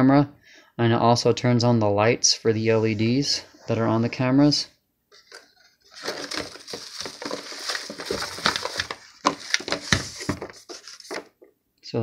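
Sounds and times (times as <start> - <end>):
packing material crinkling: 5.3 - 11.3.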